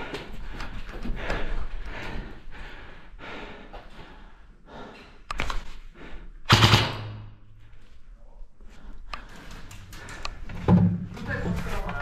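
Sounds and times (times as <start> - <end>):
airsoft gun shots: 6.5 - 7.3.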